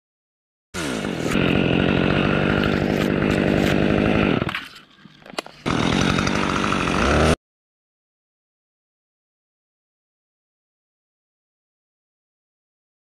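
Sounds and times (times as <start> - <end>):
chainsaw cutting wood: 0.8 - 7.4.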